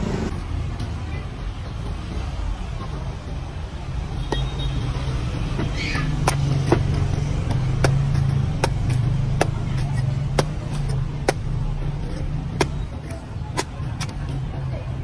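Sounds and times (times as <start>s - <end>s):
machete chopping coconut: 5.6s - 14.4s.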